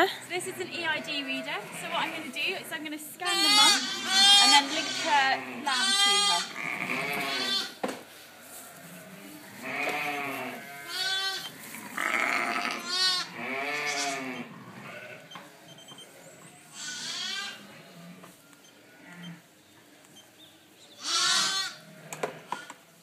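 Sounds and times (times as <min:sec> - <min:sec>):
sheep bleating: 0:00.5 - 0:02.4, 0:03.2 - 0:07.8, 0:08.6 - 0:15.3, 0:16.7 - 0:18.2, 0:21.0 - 0:22.7.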